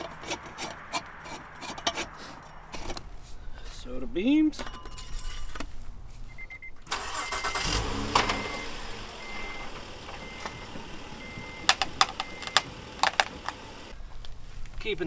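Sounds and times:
car warning chime beeping: 6.3 - 13.9
engine cranking and idling: 6.8 - 14.0.

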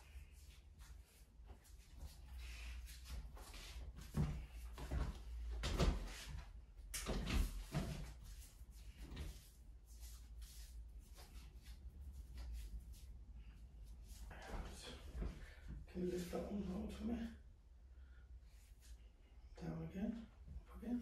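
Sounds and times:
rustles and knocks of handling: 0.0 - 16.4.

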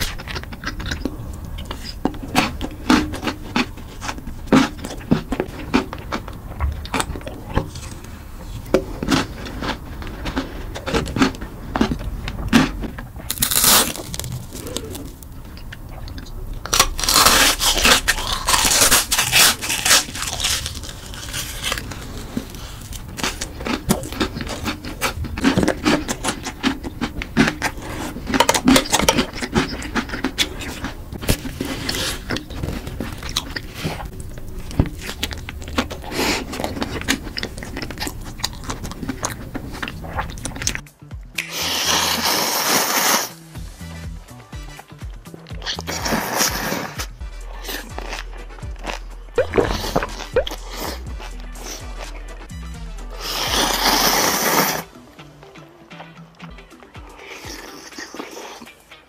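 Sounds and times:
chewing and lip smacks: 0.0 - 41.8, 47.6 - 52.3
crunching food: 0.0 - 43.4, 45.5 - 52.5, 53.1 - 55.0, 57.0 - 59.0.

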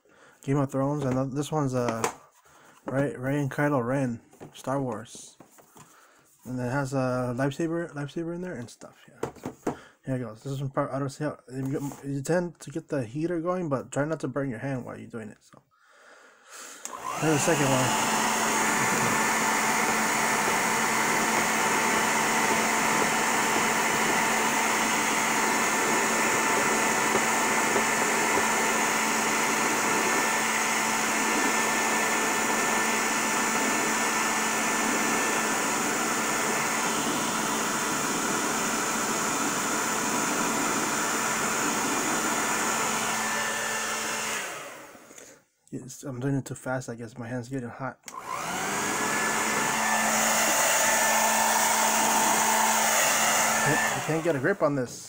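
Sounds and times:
hair dryer running: 16.8 - 45.2, 48.1 - 54.8.

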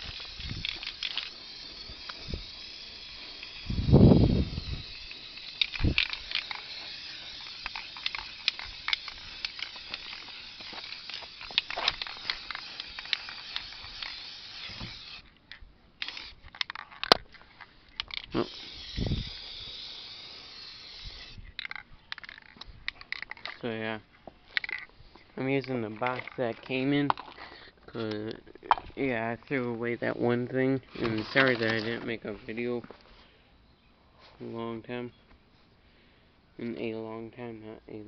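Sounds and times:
spray can hissing: 0.0 - 15.2, 16.0 - 16.5, 18.3 - 21.4.

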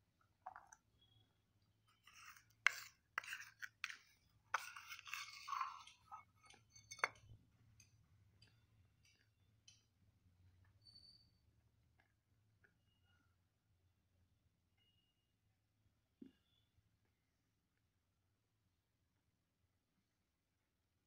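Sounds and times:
spoon scraping steel bowl: 2.0 - 7.4.

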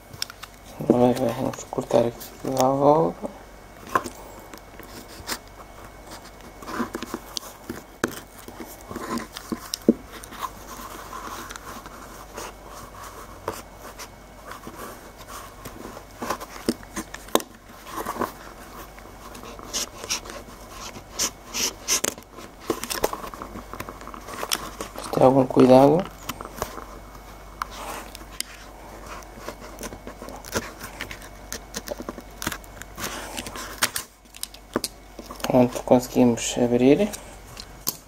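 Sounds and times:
knife scraping plastic shell: 13.2 - 26.9, 27.6 - 35.8.

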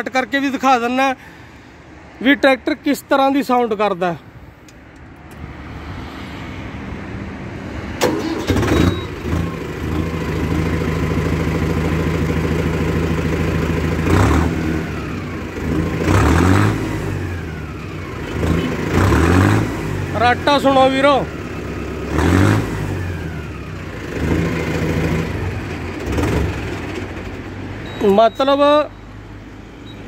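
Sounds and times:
tractor diesel engine idling and revving: 8.0 - 30.0.

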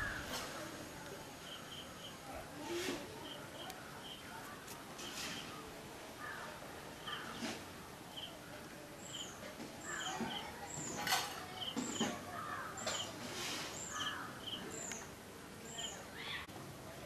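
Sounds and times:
small bird calling: 9.0 - 11.0, 11.6 - 16.5.

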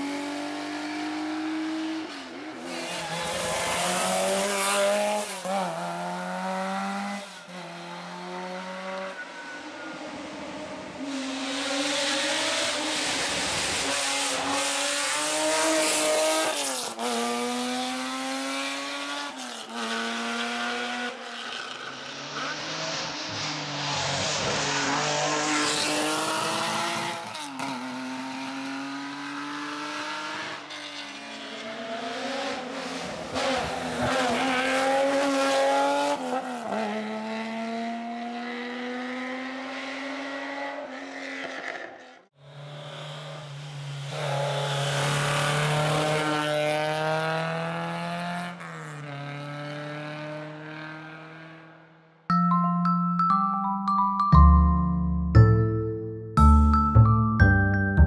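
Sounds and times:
rally car engines revving hard: 0.0 - 9.2, 10.5 - 51.8.

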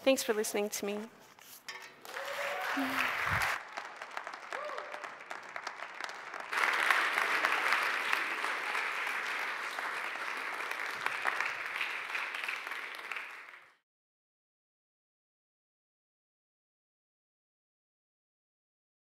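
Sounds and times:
audience applauding: 2.0 - 13.8.

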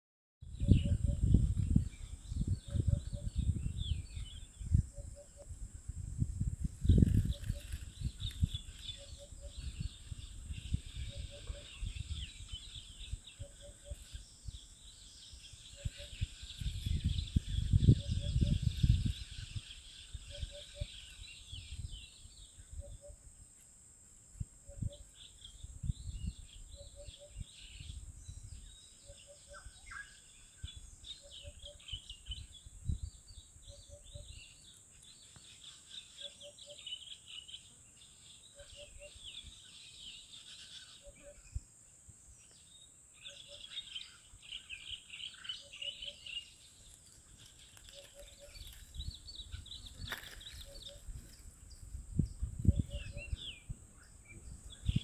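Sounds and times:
low microphone rumbles: 0.4 - 23.0, 25.6 - 28.8, 48.5 - 55.0
birds chirping: 6.9 - 23.2, 24.7 - 41.7, 42.3 - 55.0.

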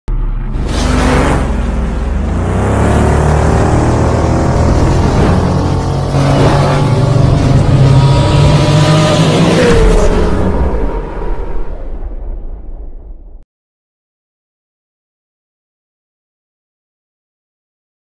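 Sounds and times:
low rumble: 0.1 - 8.6, 9.7 - 13.4
sliding engine-like tones: 0.1 - 12.2.

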